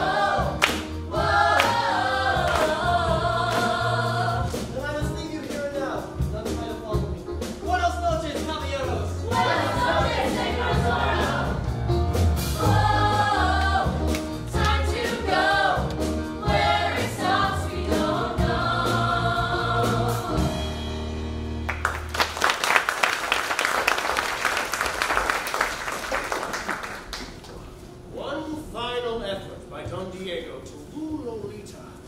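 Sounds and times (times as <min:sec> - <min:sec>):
group of voices singing: 0:00.0 - 0:04.8, 0:09.2 - 0:11.8, 0:12.6 - 0:20.6
instrumental accompaniment with bass: 0:00.0 - 0:22.1
audience applauding: 0:21.7 - 0:27.6.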